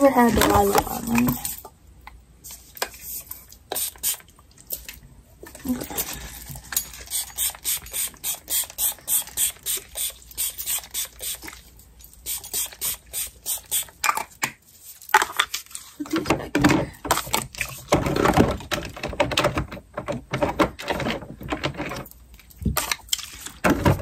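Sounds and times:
spray bottle hissing puffs: 3.7 - 4.2, 7.1 - 11.5, 12.2 - 13.9.

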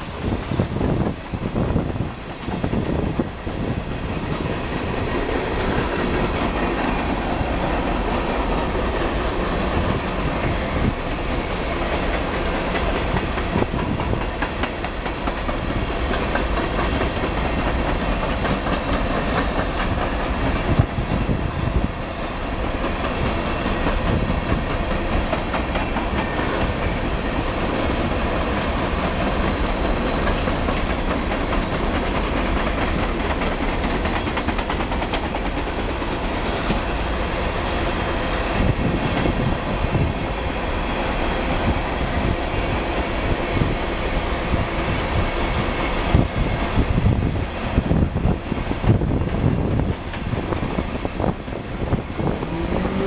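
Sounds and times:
train wheels clacking over rail joints: 0.9 - 21.2, 22.2 - 37.0.

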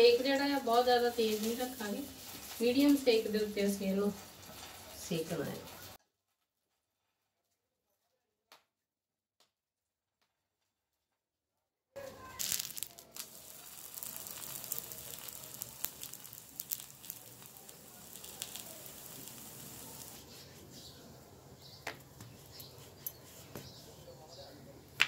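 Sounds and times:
flatbread sizzling in ghee: 0.0 - 6.0, 12.0 - 23.9.

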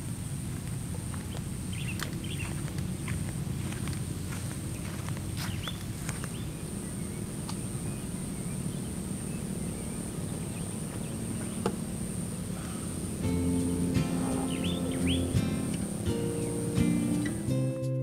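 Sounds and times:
faint bird chirps: 1.7 - 2.6, 4.8 - 17.4
high-pitched insect drone: 6.6 - 17.7.

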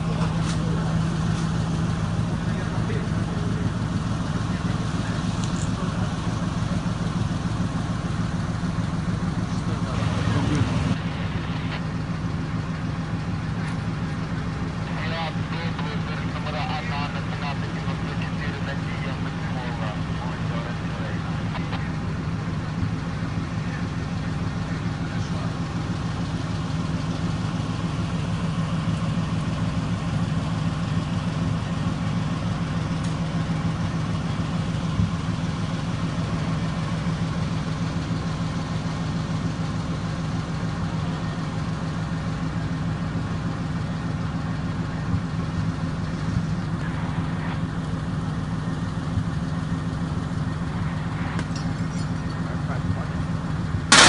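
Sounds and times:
fire truck engine idling: 0.0 - 54.0.

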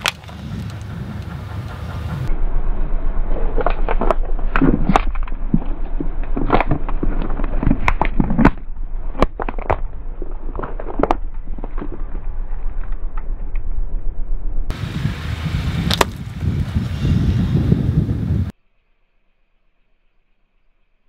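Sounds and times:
plastic bowls cracking under tyre: 0.0 - 0.8, 3.6 - 13.3.

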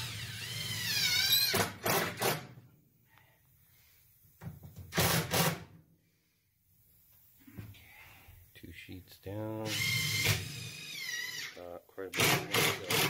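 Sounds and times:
drill driving screws: 0.0 - 2.5, 4.9 - 5.7, 9.6 - 11.5, 12.2 - 13.0.

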